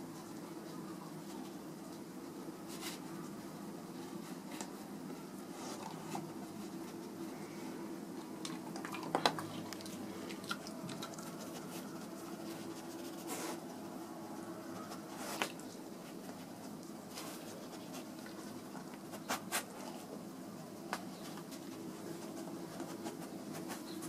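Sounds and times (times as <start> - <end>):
steady low hum: 0.0 - 24.0
dog sniffing: 11.0 - 13.8.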